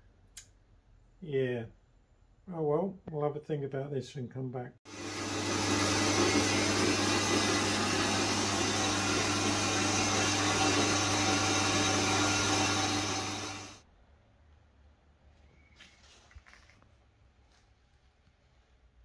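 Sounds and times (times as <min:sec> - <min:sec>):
electric motor running: 0:04.9 - 0:13.8.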